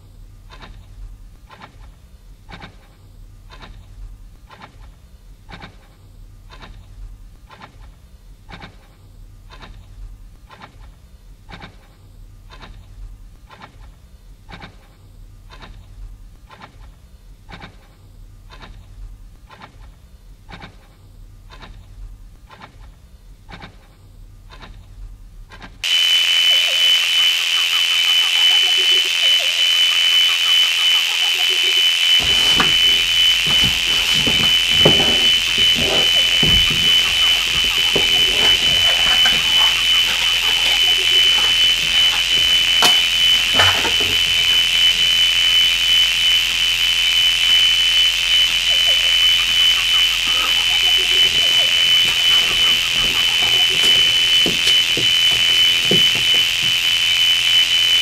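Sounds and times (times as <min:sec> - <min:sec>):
radio static hiss with whine: 0:25.8 - 0:58.0
faint warbling tones: 0:26.4 - 0:58.0.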